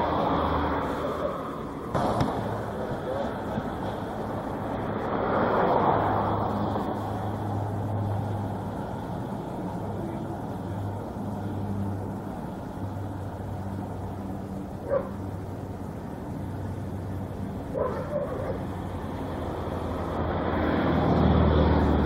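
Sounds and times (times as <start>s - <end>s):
dog bark: 14.8s - 15.2s, 17.7s - 18.7s.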